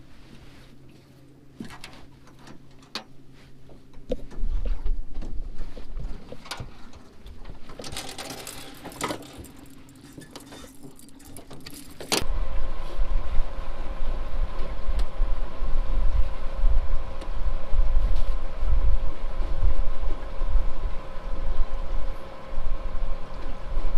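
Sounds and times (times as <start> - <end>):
low rumble: 11.7 - 23.9.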